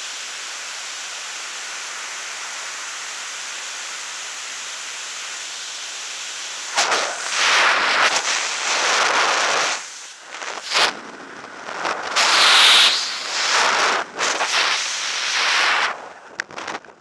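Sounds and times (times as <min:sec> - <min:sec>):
wind rushing over microphone: 0:06.7 - 0:17.0.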